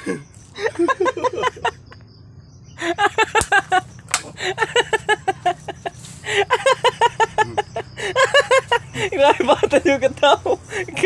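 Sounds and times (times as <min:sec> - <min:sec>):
man laughing hard: 0:00.0 - 0:02.0, 0:02.8 - 0:09.6
sharp clicks: 0:03.3 - 0:04.4.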